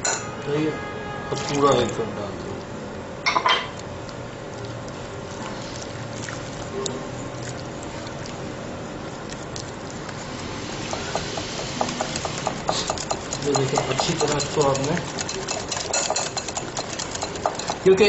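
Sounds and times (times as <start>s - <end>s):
whisk stirring wet batter: 4.4s - 18.0s
whisk clinking on glass bowl: 10.9s - 18.0s.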